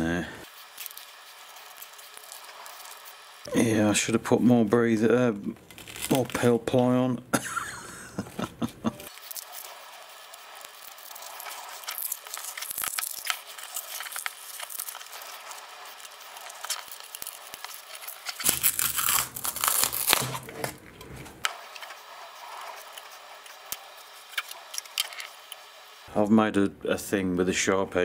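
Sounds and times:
fabric crinkling and tearing: 0.5 - 3.2, 5.5 - 6.8, 9.1 - 25.4.

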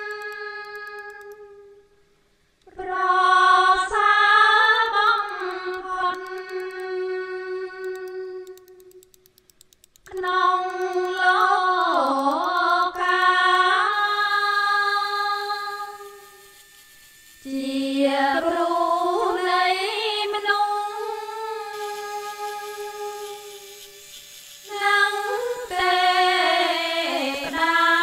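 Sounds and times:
person singing ornamented notes: 0.0 - 1.9, 2.7 - 9.0, 10.1 - 28.0.

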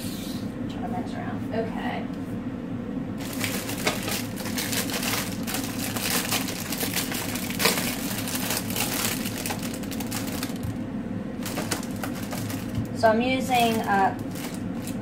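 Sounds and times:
plastic bag crinkling: 3.2 - 10.8, 11.4 - 15.0
sharp plastic crackle: 3.2 - 10.8, 11.4 - 15.0.

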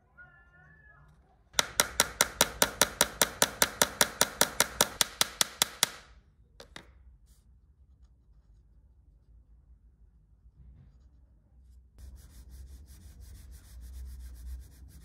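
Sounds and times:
small hammer tapping: 1.6 - 6.9.

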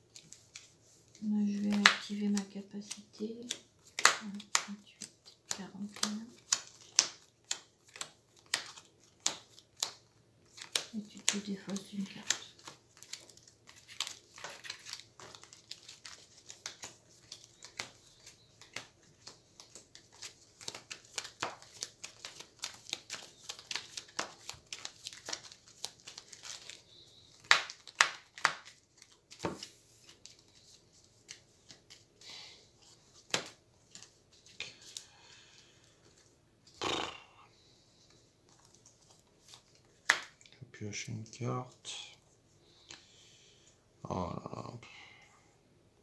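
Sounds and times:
playing cards clicking and snapping: 1.6 - 32.2, 33.1 - 35.6, 38.5 - 40.5.

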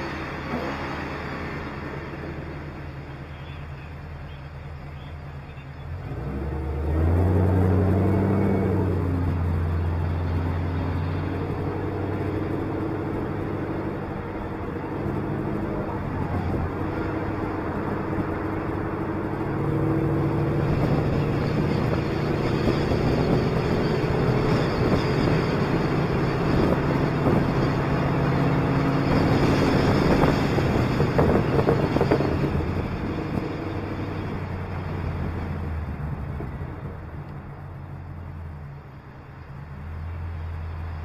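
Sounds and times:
car engine: 0.0 - 41.0
road noise: 0.0 - 41.0
wind on microphone: 20.2 - 37.1.

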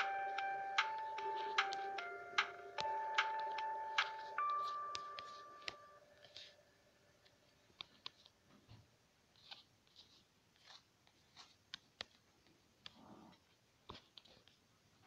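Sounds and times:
taps on a touchscreen: 0.0 - 5.9.

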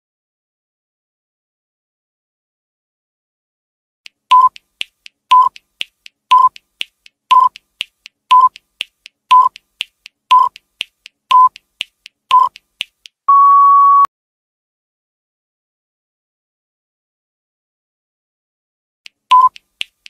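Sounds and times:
light ticks: 4.1 - 13.2, 19.1 - 20.0
short beeps: 4.3 - 4.6, 6.3 - 6.6, 8.3 - 8.6, 10.3 - 10.6, 11.3 - 11.5, 12.3 - 12.5, 13.3 - 14.1, 19.3 - 19.6
longer higher beep: 13.3 - 14.1.

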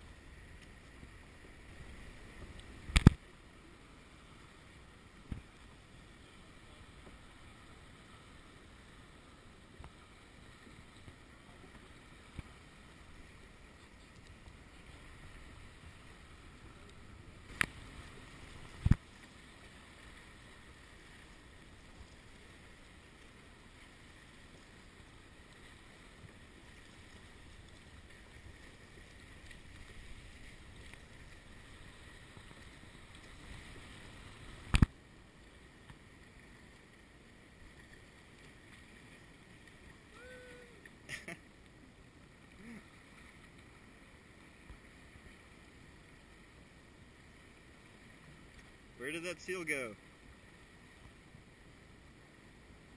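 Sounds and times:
faint water around kayak: 0.0 - 52.9.

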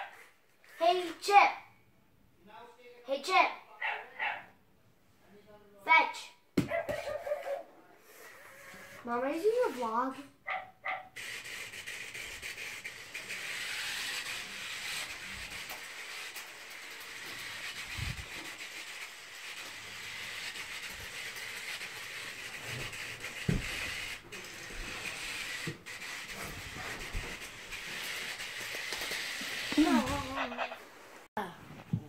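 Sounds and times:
robot wheel motors whirring: 11.2 - 30.7.

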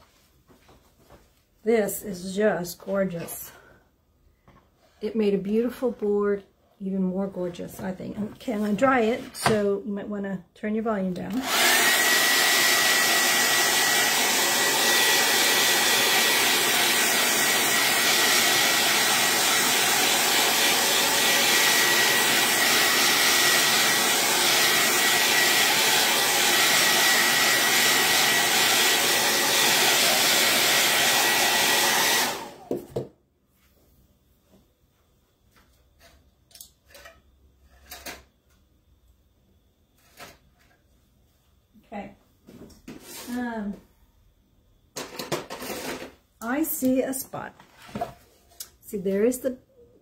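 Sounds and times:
hot-air dryer blowing with whine: 11.4 - 33.1.

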